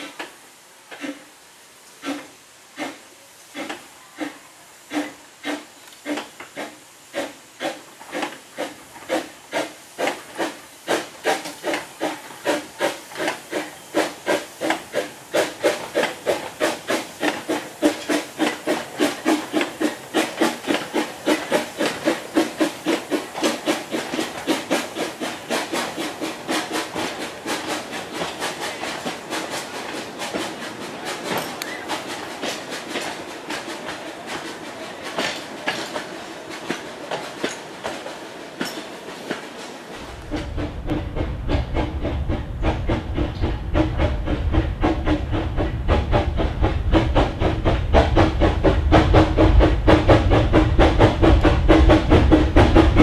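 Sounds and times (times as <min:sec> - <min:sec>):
steam locomotive chuffing: 0:00.0 - 0:53.0.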